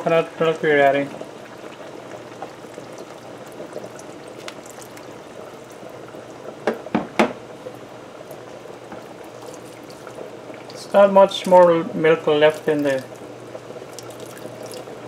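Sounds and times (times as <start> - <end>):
coconut milk pouring through strainer: 9.2 - 13.2, 13.9 - 15.0.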